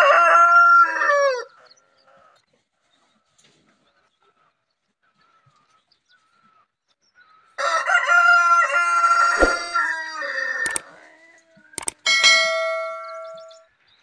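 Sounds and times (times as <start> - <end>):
rooster crowing: 0.0 - 1.5, 7.6 - 10.8
sharp clicks: 10.6 - 10.8, 11.8 - 12.0
bell-like ding: 12.1 - 13.6.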